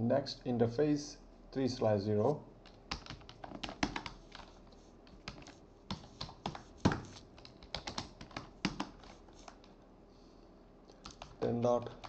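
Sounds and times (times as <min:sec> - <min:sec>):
computer keyboard typing: 0:02.6 - 0:09.7, 0:10.9 - 0:12.0.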